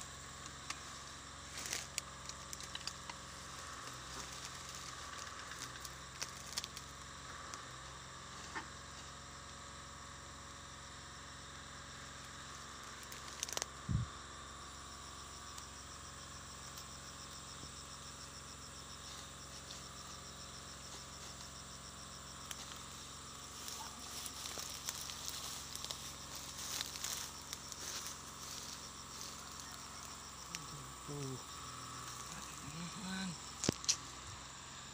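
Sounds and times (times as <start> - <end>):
fast pulsing insect trill: 0.0 - 34.9
insects chirping: 0.0 - 34.9
vegetation rustling and crackling: 0.6 - 6.9, 12.4 - 13.8, 22.3 - 34.3.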